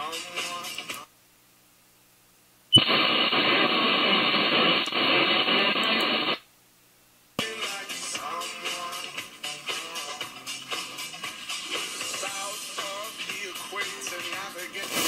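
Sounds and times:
music: 0.0s - 1.0s, 7.4s - 15.0s
radio static hiss: 0.0s - 1.7s, 2.6s - 6.5s, 7.3s - 15.0s.

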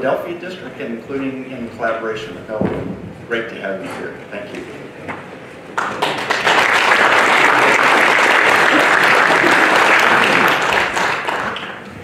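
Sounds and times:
audience applauding: 5.7s - 11.8s.

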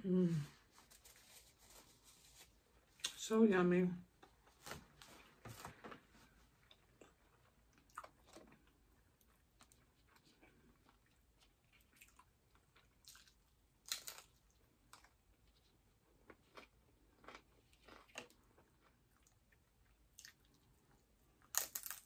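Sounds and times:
chewing crispy food: 6.6s - 22.0s.

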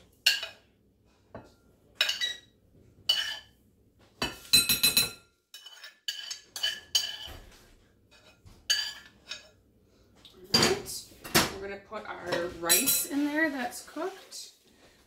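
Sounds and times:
metal utensil scraping a pan: 3.1s - 3.5s, 4.2s - 9.6s.

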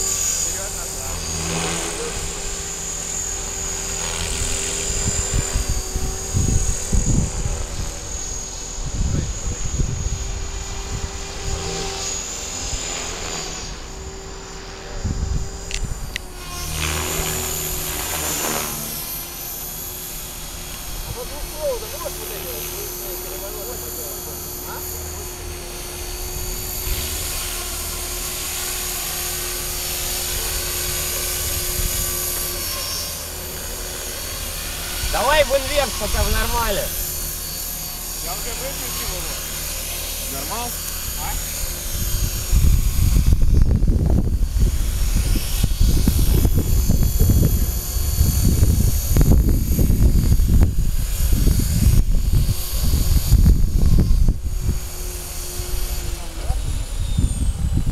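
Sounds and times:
model helicopter motor whine: 0.0s - 57.9s
rotor noise: 0.0s - 57.9s.

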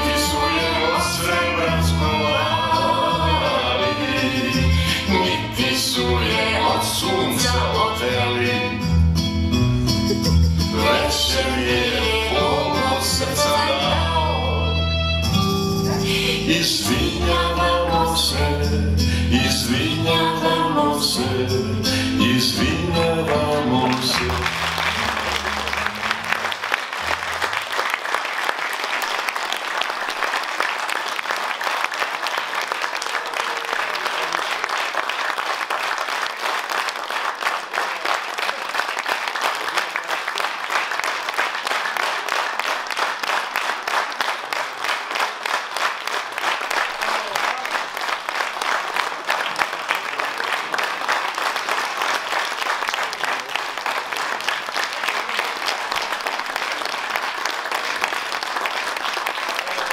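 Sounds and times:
closing music: 9.9s - 27.7s
audience applauding: 22.5s - 59.9s.

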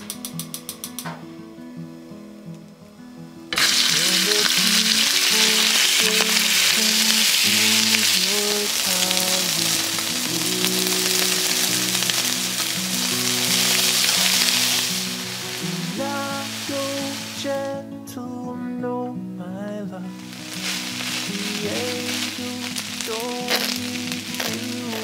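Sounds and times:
chicken sizzling in hot oil: 3.6s - 17.4s, 20.2s - 25.0s.

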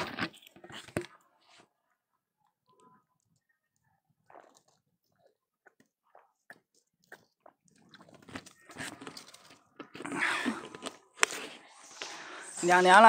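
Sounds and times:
close crunching and crackling: 3.3s - 12.6s.

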